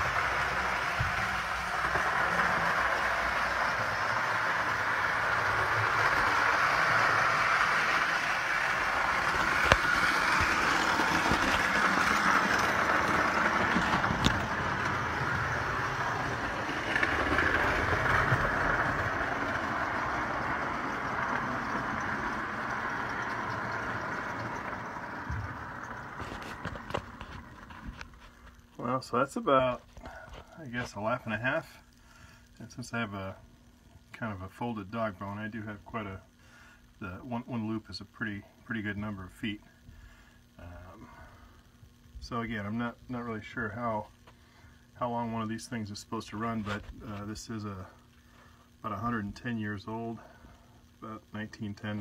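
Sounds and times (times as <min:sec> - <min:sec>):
clockwork toy train whirring: 0:00.0 - 0:29.7.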